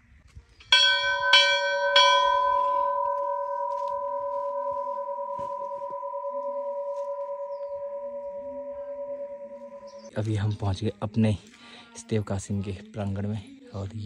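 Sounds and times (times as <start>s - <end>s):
temple bell ringing: 0.7s - 10.1s.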